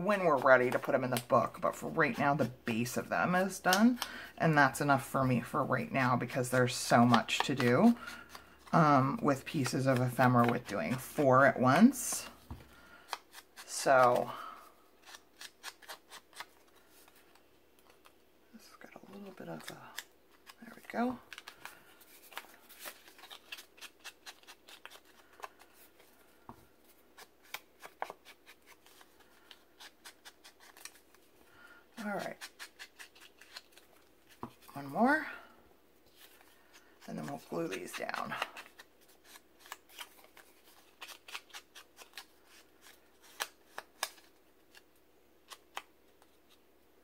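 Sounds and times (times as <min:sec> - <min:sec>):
paper rustling: 0:19.1 - 0:26.2.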